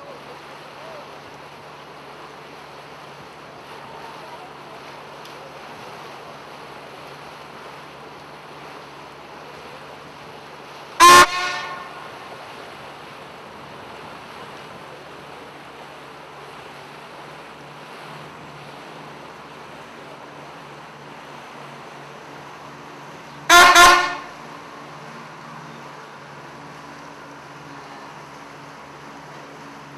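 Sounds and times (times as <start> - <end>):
boat engine drone: 0.0 - 29.9
water noise: 0.0 - 29.9
boat horn blast: 11.0 - 12.3, 23.5 - 24.5.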